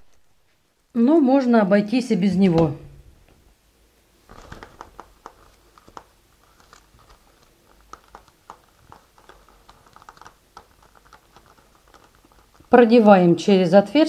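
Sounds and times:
plastic film crinkling: 4.2s - 13.1s.

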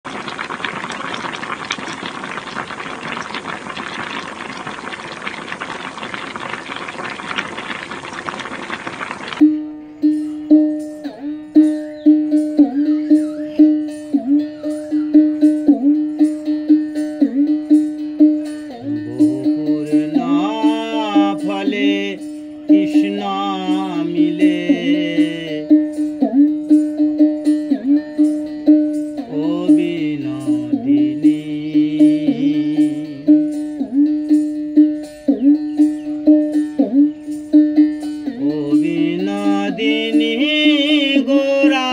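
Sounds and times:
bending melody line: 9.2s - 41.9s
plucked strings: 9.4s - 41.9s
steady beat: 17.4s - 21.6s.

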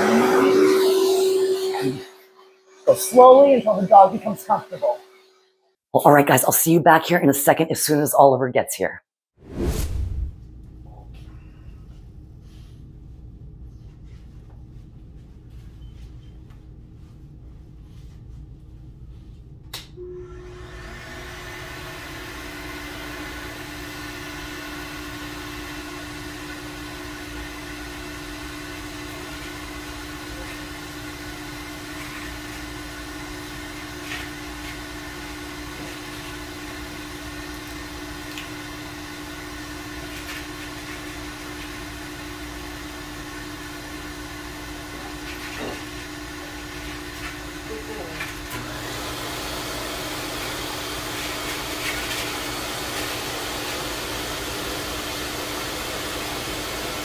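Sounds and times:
pet dryer motor and air rush: 0.0s - 2.1s, 19.8s - 57.0s.

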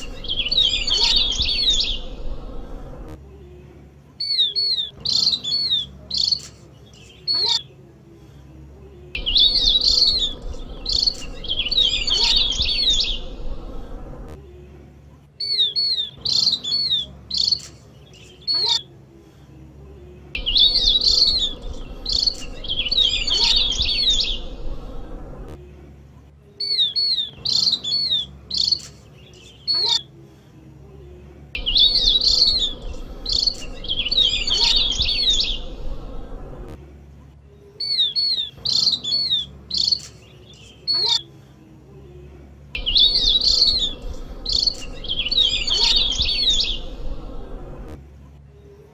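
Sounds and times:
bird chirping lure call: 31.6s - 35.6s, 42.8s - 46.8s.

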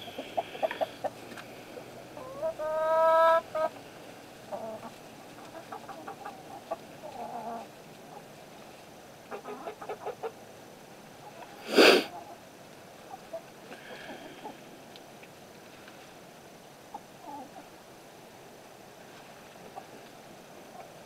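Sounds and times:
chicken drawn-out call: 0.0s - 3.8s, 4.5s - 8.2s, 9.3s - 10.4s
chickens clucking: 0.0s - 10.5s, 11.2s - 12.4s, 13.0s - 14.9s, 16.9s - 17.8s, 19.2s - 21.0s.

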